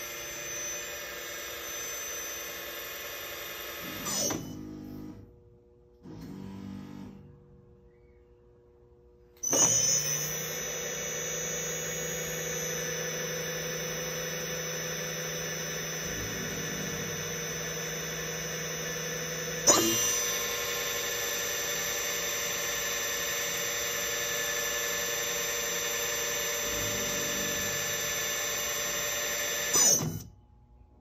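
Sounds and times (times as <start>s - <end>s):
electric motor whining: 9.4s - 30.3s.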